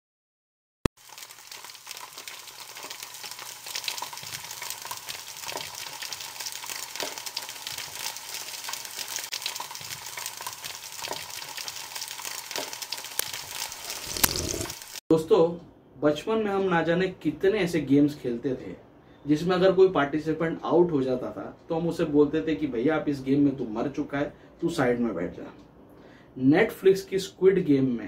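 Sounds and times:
food sizzling in hot oil: 0:01.0 - 0:15.0.

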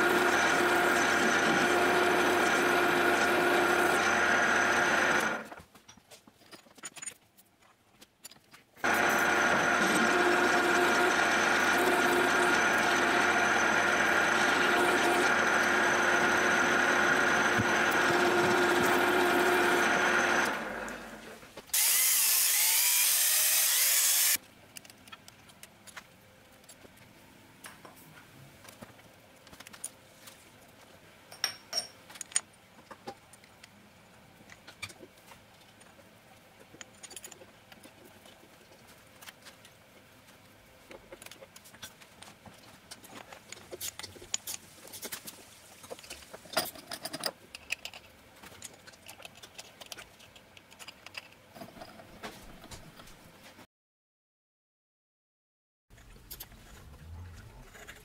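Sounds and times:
milling machine spindle whine: 0:00.0 - 0:05.5, 0:08.8 - 0:21.2.

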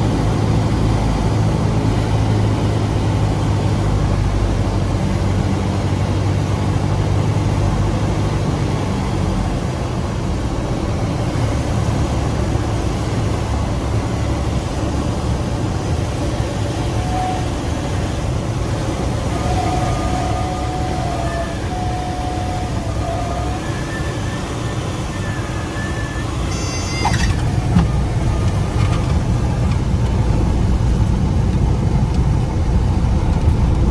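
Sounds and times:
aircraft engine low drone: 0:00.0 - 0:33.9
propeller and wind noise: 0:00.0 - 0:33.9
wheels rumbling on runway: 0:00.0 - 0:33.9
stall warning horn: 0:16.9 - 0:18.0, 0:19.2 - 0:28.9.

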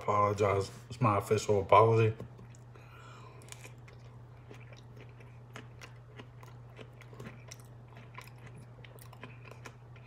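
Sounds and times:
steady low hum: 0:00.0 - 0:10.0
man chewing: 0:02.3 - 0:10.0.

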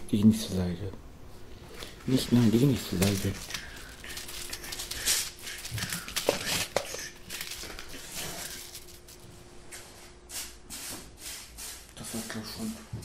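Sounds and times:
faint steady hum: 0:00.0 - 0:13.0
rustling and scratching handling: 0:01.7 - 0:10.2.

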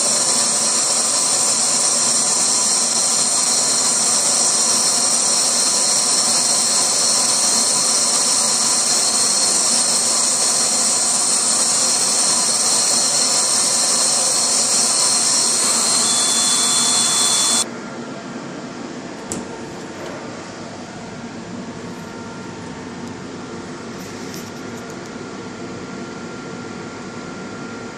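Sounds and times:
laser engraver hiss and whine: 0:00.0 - 0:17.7
machine hum: 0:00.0 - 0:24.4.

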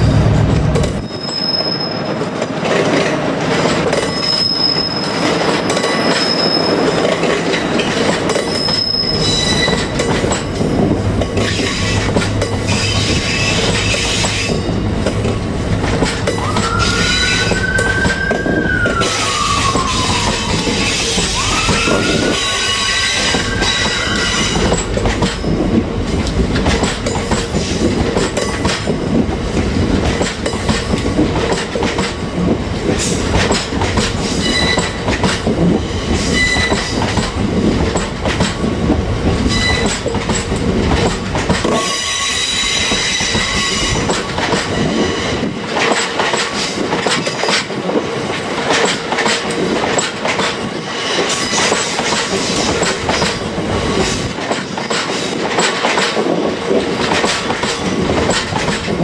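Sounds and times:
freight train wheels rumbling: 0:00.0 - 0:59.0
high wheel squeal: 0:01.0 - 0:02.2, 0:04.0 - 0:07.0, 0:08.5 - 0:09.9, 0:16.4 - 0:24.8, 0:34.4 - 0:35.0, 0:36.2 - 0:36.9, 0:39.5 - 0:40.0, 0:41.8 - 0:44.1
clacks over rail joints: 0:02.1 - 0:18.4, 0:20.1 - 0:59.0.

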